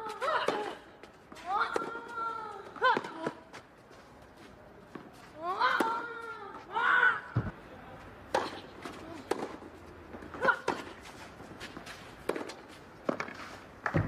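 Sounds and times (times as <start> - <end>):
tennis ball hits: 5.0 - 6.2, 8.3 - 14.0.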